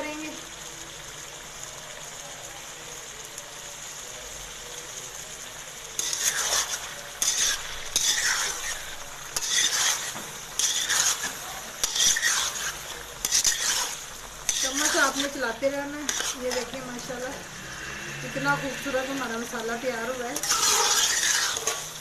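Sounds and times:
meat sizzling in a pan: 0.0 - 22.0
metal spoon stirring and scraping: 5.8 - 22.0.

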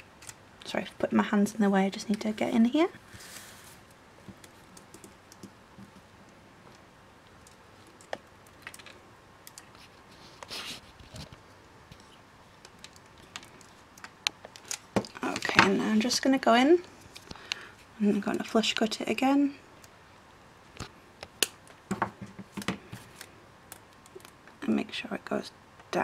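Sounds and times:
scraping rustle: 3.1 - 3.9.

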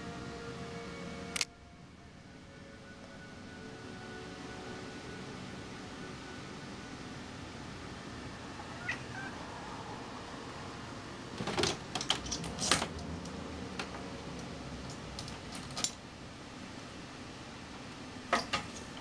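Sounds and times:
kitten chirping: 8.7 - 9.3.

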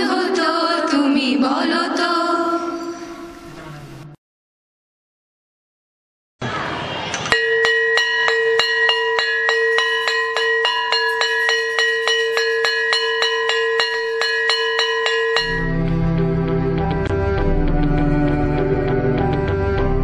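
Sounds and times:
brass gong bell struck rapidly: 7.3 - 16.0.

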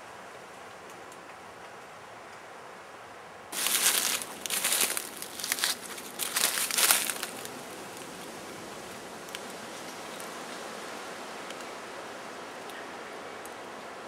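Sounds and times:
faint steady hiss: 0.0 - 14.0
dry leaves rustling and crunching: 3.6 - 10.4.

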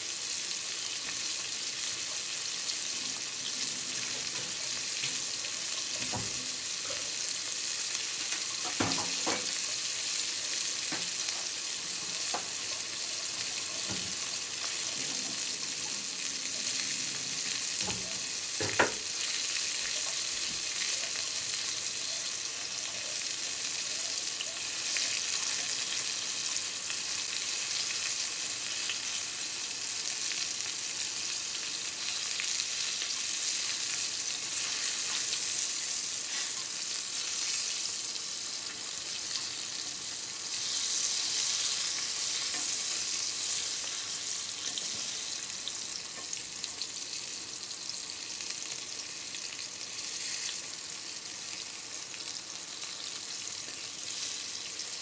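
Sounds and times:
vegetables sizzling in oil: 0.0 - 55.0
chopsticks turning food in pan: 38.6 - 47.1.

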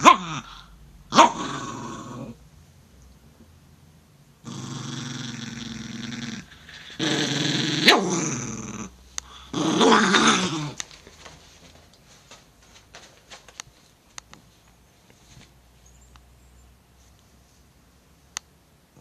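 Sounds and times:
dog growling: 0.0 - 2.4, 4.4 - 10.8.

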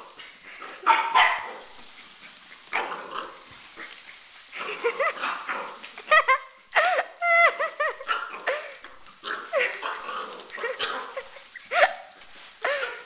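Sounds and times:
puppy yapping: 0.8 - 1.7.

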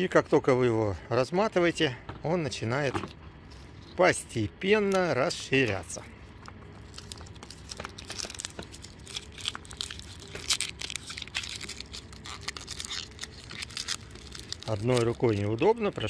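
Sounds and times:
paper liner crinkling and tearing: 3.4 - 16.0.

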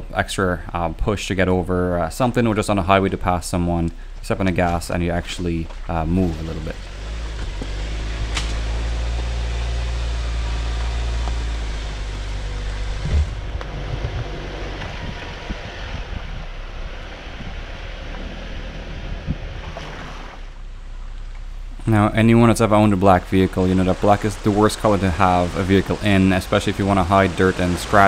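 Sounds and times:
car engine running: 0.0 - 28.0
thump: 13.0 - 14.2
knocks and bumps over rocks: 13.0 - 15.6.

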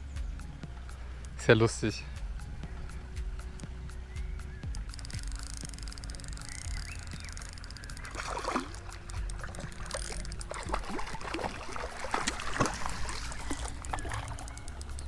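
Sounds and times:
fish splashing in water: 6.7 - 15.0.

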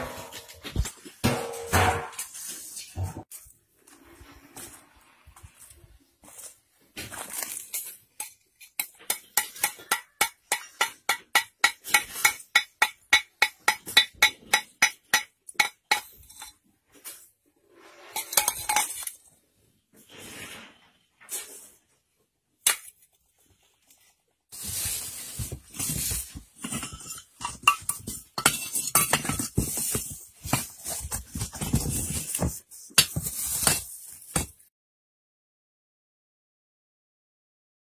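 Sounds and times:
charcoal clattering: 18.2 - 19.3, 24.5 - 34.6.

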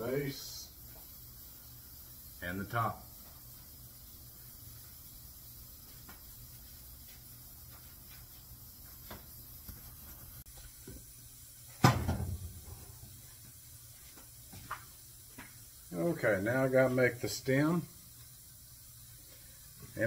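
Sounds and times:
steady low hum: 0.0 - 20.0
loud thump: 11.8 - 12.7.

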